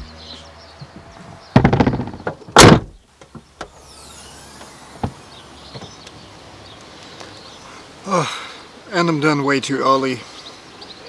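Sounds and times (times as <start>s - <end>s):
tailgate rattling clatter: 1.0s - 3.0s
car tailgate slamming shut: 1.4s - 3.0s, 4.6s - 6.0s.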